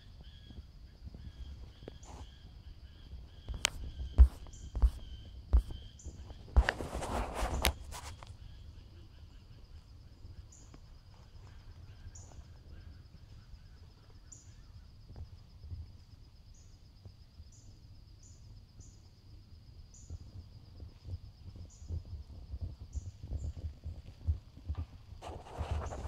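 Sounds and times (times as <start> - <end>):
pulsing insect trill: 0.0 - 6.8, 7.6 - 26.0
faint rustles: 3.4 - 8.5, 20.2 - 26.0.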